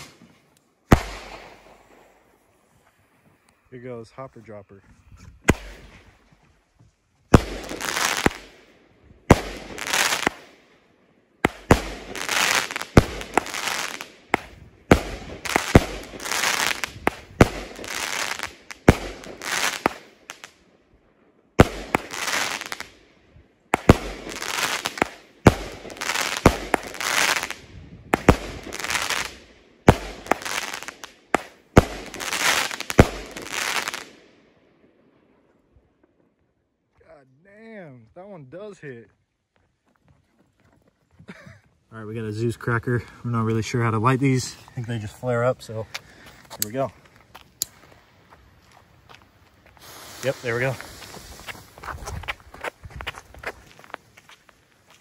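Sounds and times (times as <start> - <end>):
firework shots bang and hiss: 0.9 - 2.1, 5.4 - 6.0, 7.3 - 8.5, 9.3 - 10.4, 11.4 - 20.4, 21.6 - 22.9, 23.8 - 34.1, 49.7 - 51.9.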